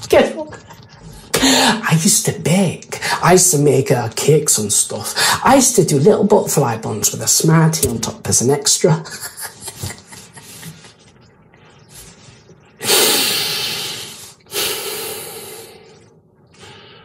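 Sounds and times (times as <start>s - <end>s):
man laughing: 9.0s - 11.0s.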